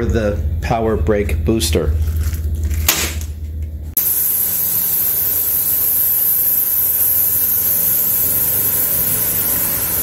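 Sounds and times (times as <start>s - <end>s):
loud even hiss: 4.0s - 10.0s.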